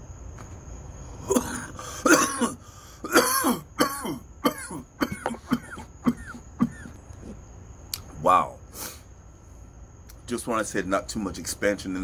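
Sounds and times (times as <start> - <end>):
man coughing hard: 1.3 - 7.0.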